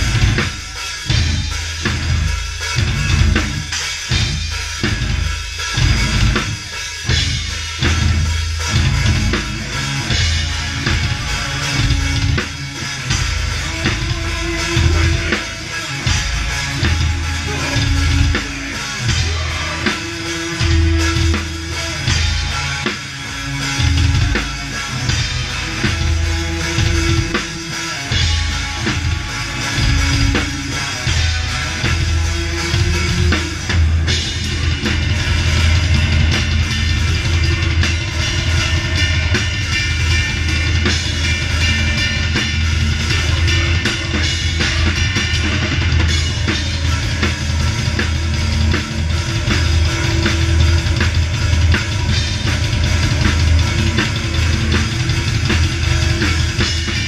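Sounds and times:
drums and cymbals: 0:00.0 - 0:57.0
heavy metal band playing: 0:00.0 - 0:57.0.

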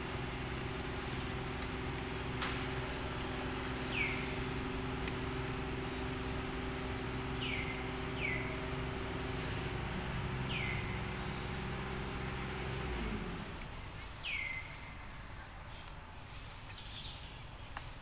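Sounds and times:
outdoor hiss: 0:00.0 - 0:18.0
bird chirping: 0:03.7 - 0:05.0, 0:05.9 - 0:12.8, 0:13.7 - 0:17.7.

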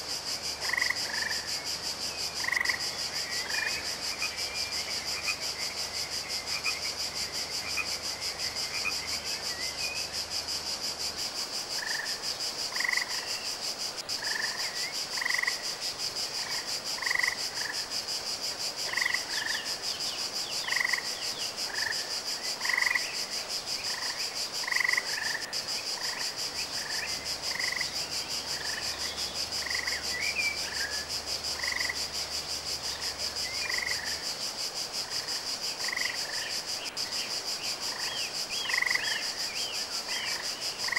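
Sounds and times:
high pulsing insect trill: 0:00.0 - 0:40.9
frog croaking: 0:00.6 - 0:01.5, 0:02.4 - 0:04.3, 0:11.8 - 0:13.2, 0:14.2 - 0:15.6, 0:18.8 - 0:19.6, 0:20.7 - 0:21.1, 0:22.6 - 0:23.0, 0:23.9 - 0:28.9, 0:31.6 - 0:32.1, 0:35.8 - 0:36.5, 0:37.9 - 0:39.3.

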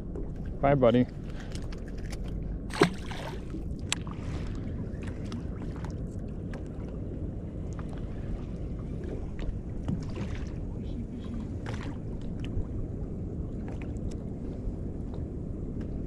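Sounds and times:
water lapping against boat: 0:00.0 - 0:16.0
wind: 0:00.0 - 0:16.0
fish splashing into water: 0:02.7 - 0:04.1.

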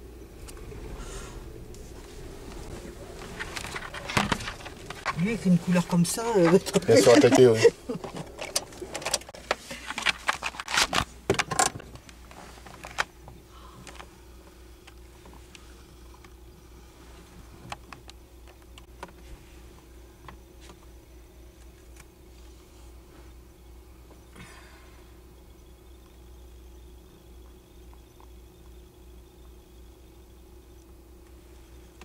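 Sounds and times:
faint steady hum: 0:00.0 - 0:32.0
camcorder handling clicks and rustles: 0:08.1 - 0:12.0.

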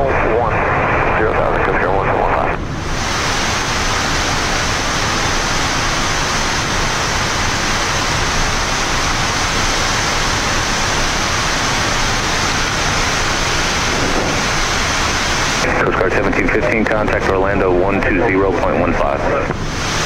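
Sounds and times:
rushing hiss of airflow: 0:02.8 - 0:15.6.

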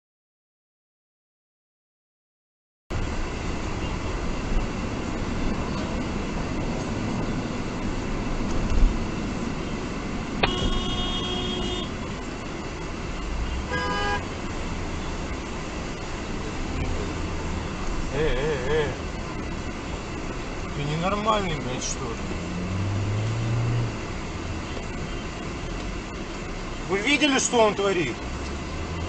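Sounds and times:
car road and engine noise: 0:02.9 - 0:29.0
car horn: 0:10.4 - 0:12.0, 0:13.4 - 0:14.4.

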